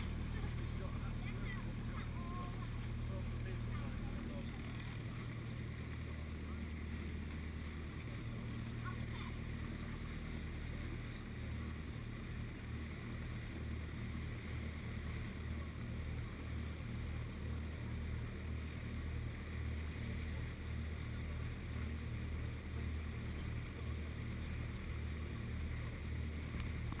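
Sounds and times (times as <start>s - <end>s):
boat engine droning: 0.0s - 27.0s.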